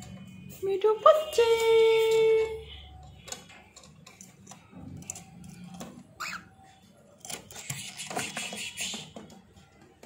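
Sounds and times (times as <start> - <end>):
bird chirp: 6.2 - 6.8.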